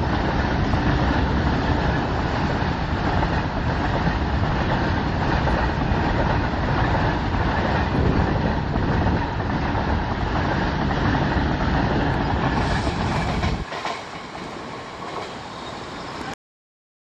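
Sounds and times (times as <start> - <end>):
wheels clattering over rail joints: 0.0 - 16.3
freight train rumbling past: 0.0 - 16.4.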